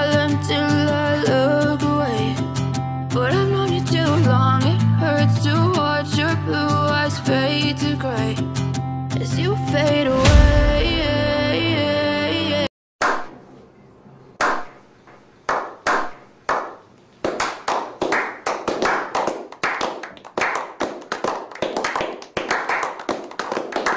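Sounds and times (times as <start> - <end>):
music track: 9.6 - 12.7
men clapping: 15.5 - 23.9.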